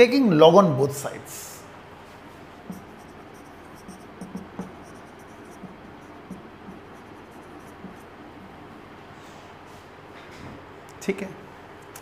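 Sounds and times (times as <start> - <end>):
marker writing on whiteboard: 2.6 - 8.6.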